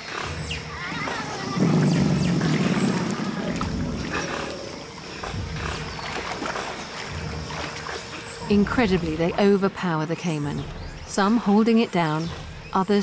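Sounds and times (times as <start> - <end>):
animals growling and snarling: 0.0 - 8.1
water splashing: 0.0 - 13.0.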